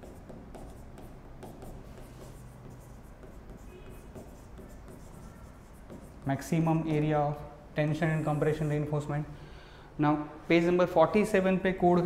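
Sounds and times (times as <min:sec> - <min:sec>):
marker scratching on whiteboard: 0:00.0 - 0:09.1.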